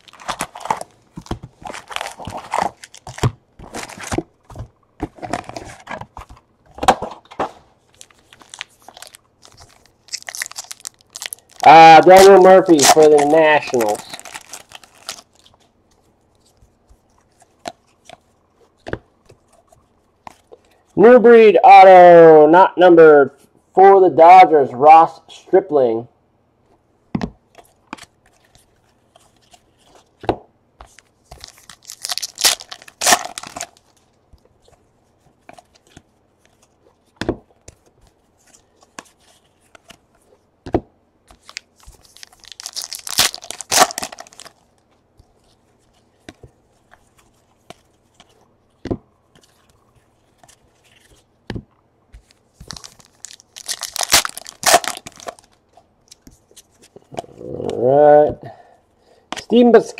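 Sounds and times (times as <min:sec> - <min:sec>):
wrappers torn and crinkled: 0:00.0 - 0:01.0, 0:01.6 - 0:04.2, 0:07.9 - 0:15.6, 0:30.9 - 0:34.1, 0:41.4 - 0:44.8, 0:52.5 - 0:56.2.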